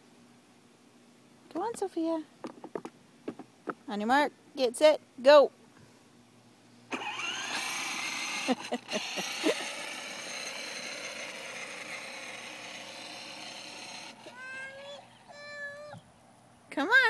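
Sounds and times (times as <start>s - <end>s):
plastic wheels rolling on asphalt: 6.9s - 15.1s
electric motor whining: 6.9s - 15.3s.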